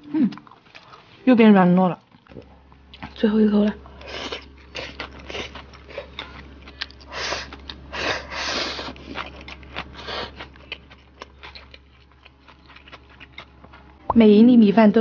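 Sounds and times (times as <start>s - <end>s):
wet chewing: 1.8s - 3.2s, 3.9s - 14.1s.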